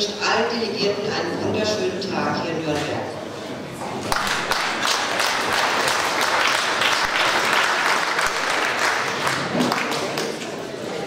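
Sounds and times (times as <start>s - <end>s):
audience applause: 4.0s - 10.7s.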